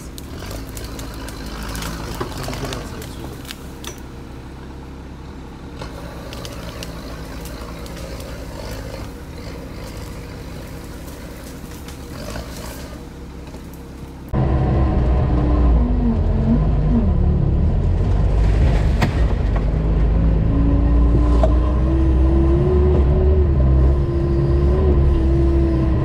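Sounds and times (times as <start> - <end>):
branches cracking and snapping: 0.0 - 4.1, 5.8 - 14.3, 17.8 - 20.1
diesel engine running: 0.0 - 26.0.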